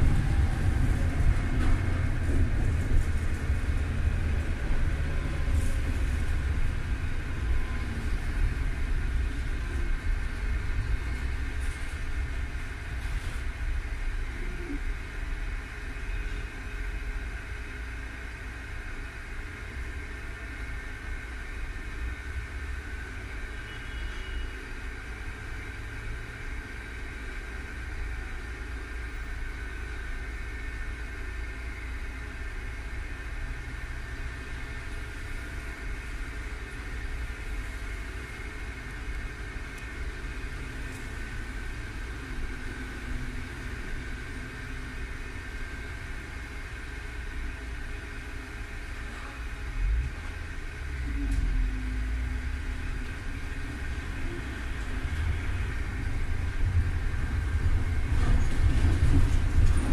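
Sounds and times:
low rumble: 0.0 - 11.9
street traffic: 0.0 - 59.9.

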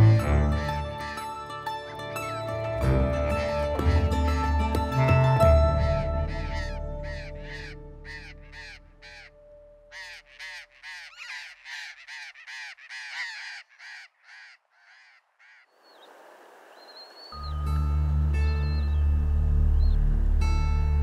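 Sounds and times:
soft music: 0.0 - 10.6, 17.3 - 21.0
parrots screeching: 9.9 - 15.6.

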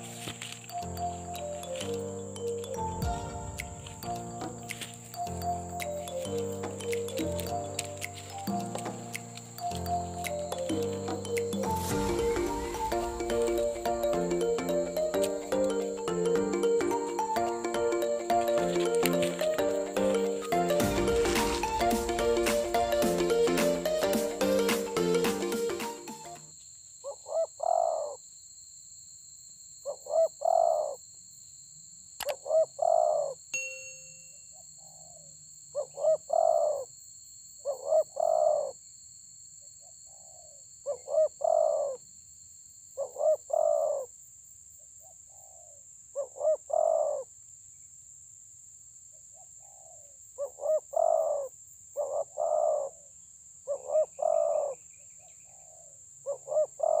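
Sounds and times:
dove cooing: 30.1 - 30.9, 32.5 - 33.3, 35.8 - 36.8, 37.8 - 38.7, 40.9 - 42.0, 43.0 - 44.0, 46.2 - 47.2, 49.7 - 53.0, 53.7 - 54.8, 55.5 - 57.0.

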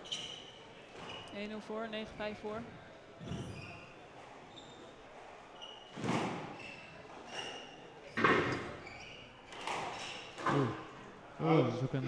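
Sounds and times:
shoe squeaks on wooden floor: 0.0 - 1.4, 3.2 - 10.7
squash ball hitting racket and wall: 5.9 - 6.8, 8.1 - 8.8, 9.5 - 10.7.

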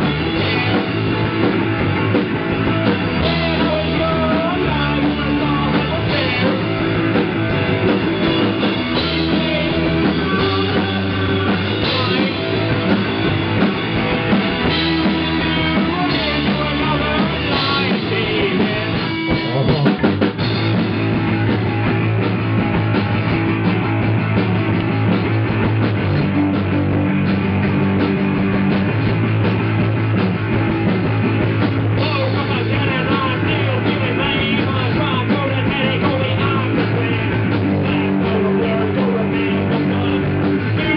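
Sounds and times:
bass guitar: 0.0 - 40.9
drum kit: 0.0 - 40.9
electric guitar: 0.0 - 40.9
person singing: 3.2 - 7.1, 8.5 - 13.1, 15.2 - 20.1, 32.0 - 40.9.

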